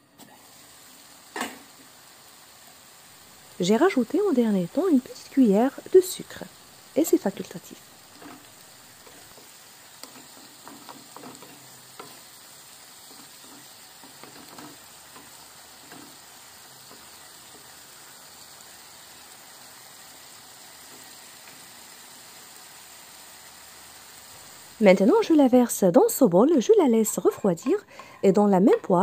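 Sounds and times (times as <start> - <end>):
sauce sizzling in a frying pan: 0.1 - 29.0
wooden spatula scraping a pan: 8.1 - 17.8.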